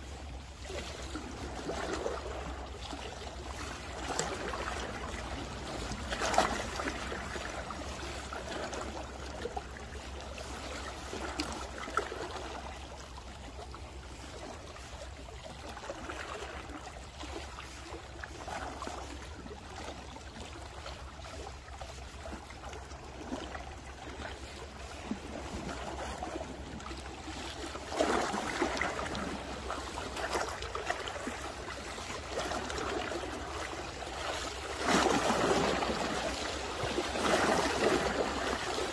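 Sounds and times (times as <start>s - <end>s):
waves lapping against rocks: 0.0s - 38.9s.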